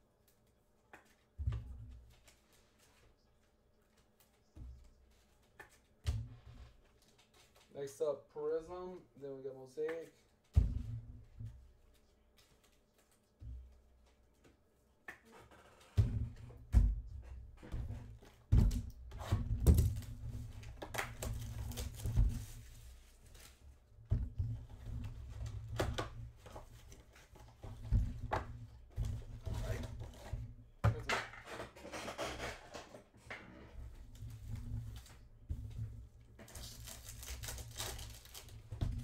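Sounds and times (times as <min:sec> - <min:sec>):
thumps and rustling of box: 0:15.9 - 0:23.0
foil packs crinkling: 0:36.5 - 0:38.7.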